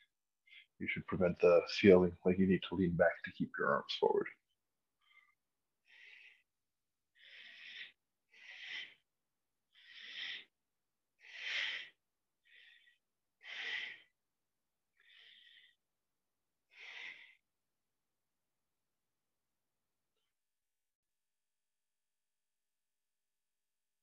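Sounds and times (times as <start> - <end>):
man breathing hard: 5.0 - 6.5, 7.2 - 9.1, 9.7 - 10.6, 11.2 - 14.2, 14.9 - 15.9, 16.7 - 17.5.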